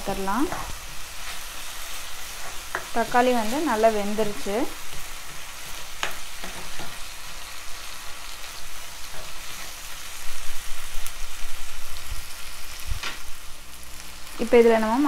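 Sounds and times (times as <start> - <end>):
vegetables sizzling in oil: 0.0 - 15.0
spatula stirring: 0.4 - 7.5.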